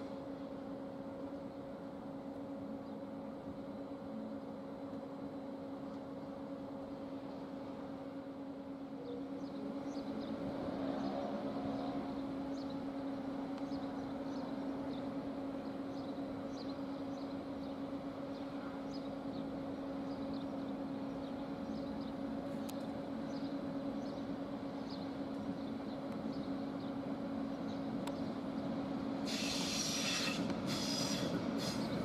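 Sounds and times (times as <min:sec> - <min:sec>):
electric train hum: 0:00.0 - 0:32.0.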